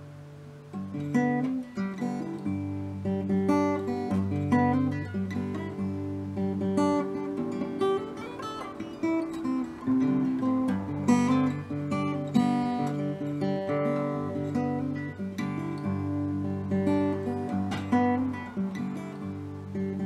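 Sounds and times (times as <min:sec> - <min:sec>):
acoustic guitar playing: 0:00.0 - 0:20.0.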